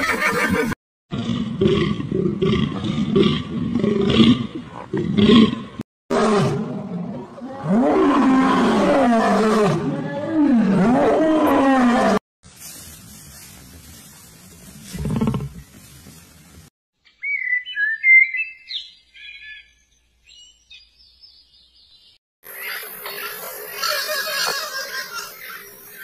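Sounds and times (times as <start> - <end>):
lions growling: 14.7 - 15.7.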